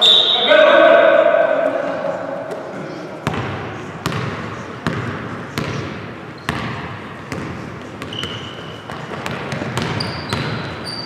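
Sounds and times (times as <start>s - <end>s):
basketball bouncing on hardwood floor: 3.2s - 5.8s, 6.5s - 10.7s
sneakers squeaking on court: 3.2s - 11.0s.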